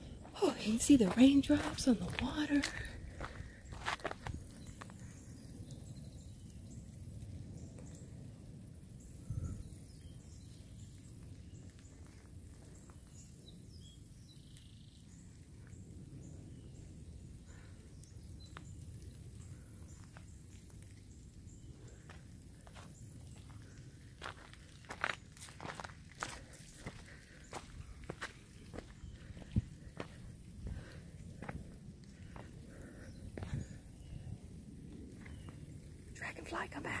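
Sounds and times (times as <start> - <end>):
rain drips: 10.0 - 30.1.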